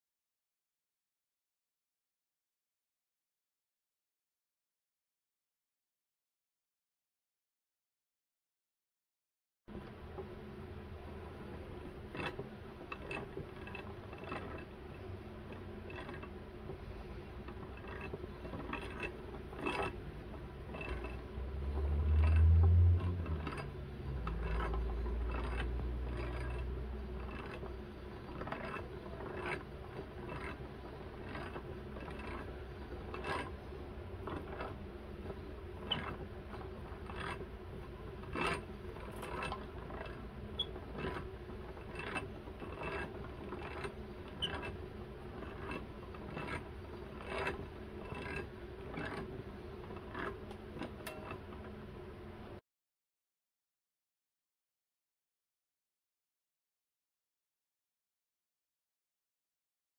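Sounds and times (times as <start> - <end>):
yarn winder gears whirring: 9.7 - 52.3.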